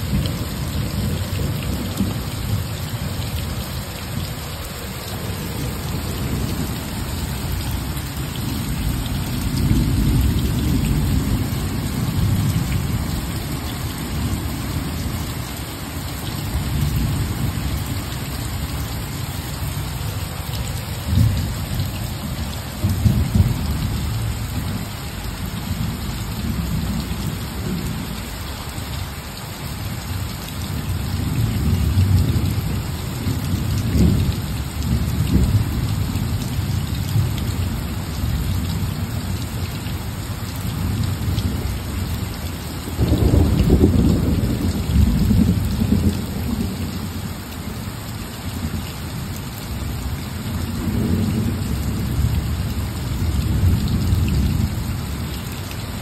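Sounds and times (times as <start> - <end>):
steady rain: 0.0 - 56.0
rolling thunder: 43.0 - 46.8.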